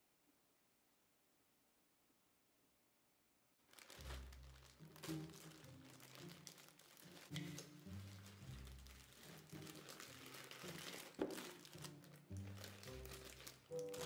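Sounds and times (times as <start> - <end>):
candy packs poured into bowl: 3.6 - 14.0
plastic bag crinkling: 3.6 - 14.0
soft background music: 3.7 - 14.0.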